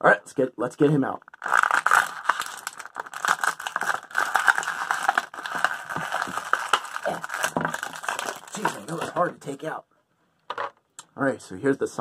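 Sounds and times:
plastic packaging crinkling: 0:01.3 - 0:09.2.

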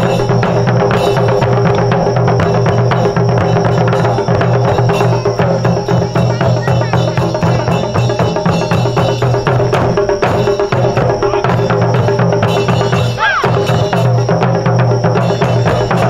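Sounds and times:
ensemble drumming: 0:00.0 - 0:16.0
person shouting: 0:13.1 - 0:13.7.

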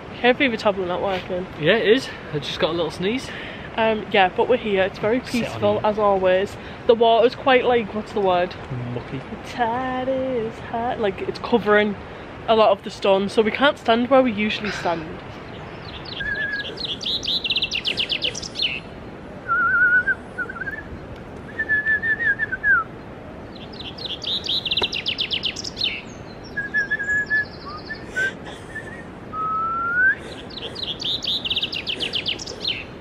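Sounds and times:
songbird trilling: 0:15.5 - 0:18.9, 0:23.5 - 0:29.1, 0:30.0 - 0:33.0
man whistling: 0:19.5 - 0:20.8, 0:21.5 - 0:22.9, 0:26.6 - 0:30.2.

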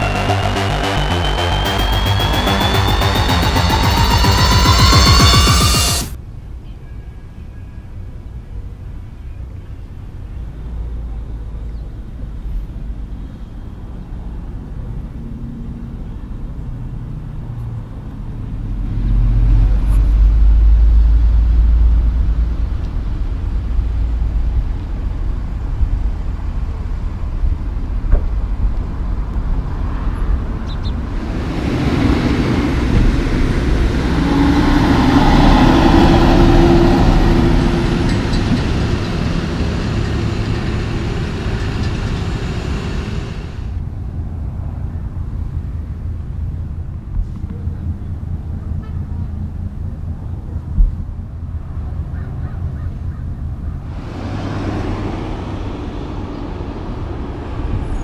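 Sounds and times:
deep low rumble: 0:00.0 - 0:06.2, 0:18.3 - 0:51.9, 0:53.5 - 0:58.0
heavy trucks and traffic: 0:00.0 - 0:58.0.

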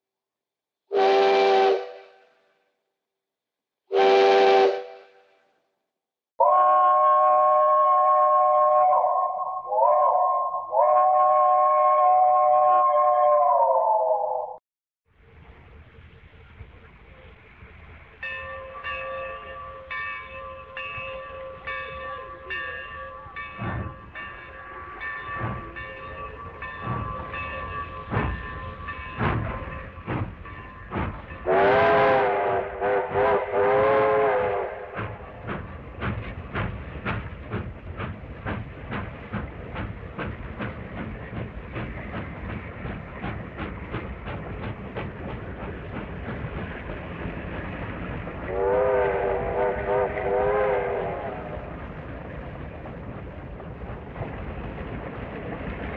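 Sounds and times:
train horn blasts: 0:00.9 - 0:02.5, 0:03.9 - 0:05.4, 0:06.4 - 0:13.2, 0:31.4 - 0:35.2, 0:48.5 - 0:51.6
crossing bell ringing: 0:18.1 - 0:31.7
train wheels clacking over rail joints: 0:23.3 - 0:55.9.

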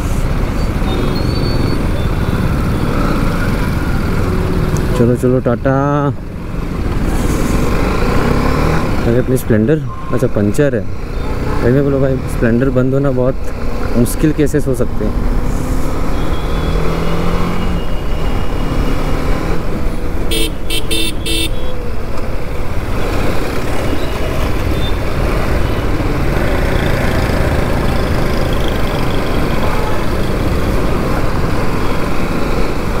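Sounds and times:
road noise: 0:00.0 - 0:33.0
vehicle horn beeps: 0:20.3 - 0:21.8.

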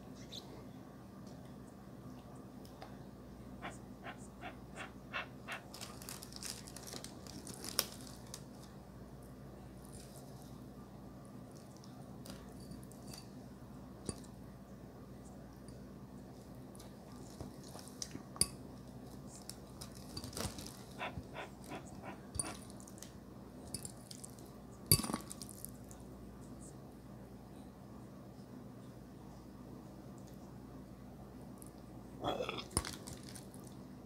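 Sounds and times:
faint low hum: 0:00.0 - 0:34.0
wet chewing: 0:03.6 - 0:06.1, 0:20.0 - 0:22.7
fork clinking on glass bowl: 0:21.8 - 0:22.6.

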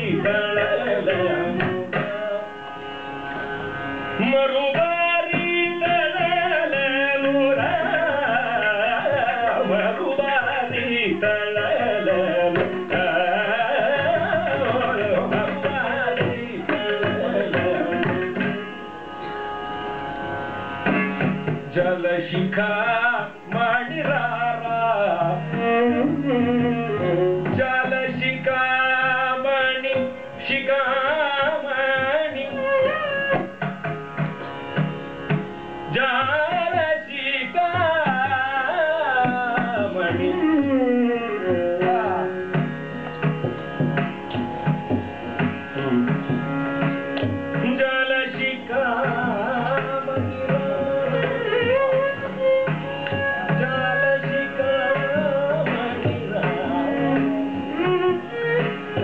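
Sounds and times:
hand drums playing rhythm: 0:00.0 - 0:02.4, 0:04.2 - 0:18.8, 0:20.8 - 0:59.0
man singing ornamented melody: 0:00.0 - 0:02.7, 0:04.2 - 0:18.7, 0:21.7 - 0:33.1, 0:35.9 - 0:42.5, 0:47.6 - 0:58.1
violin: 0:00.0 - 0:59.0.

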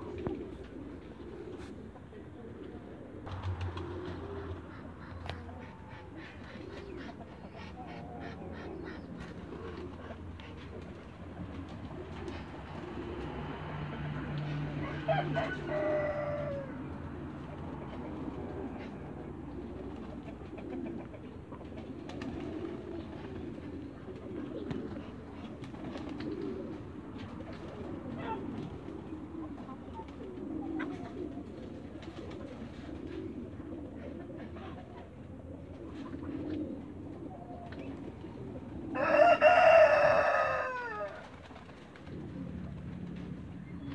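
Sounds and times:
birds cooing: 0:00.0 - 0:43.9
rooster crowing: 0:14.8 - 0:16.8, 0:38.9 - 0:41.2.

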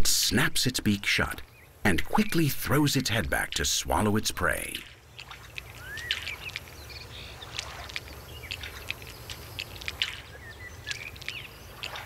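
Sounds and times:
bird chirp: 0:01.3 - 0:03.7, 0:04.4 - 0:12.0
sharp little ticks and clicks: 0:04.6 - 0:12.0.

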